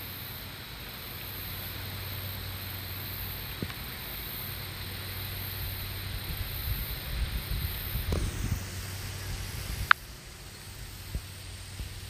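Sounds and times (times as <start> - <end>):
wind rumbling on microphone: 5.6 - 12.0.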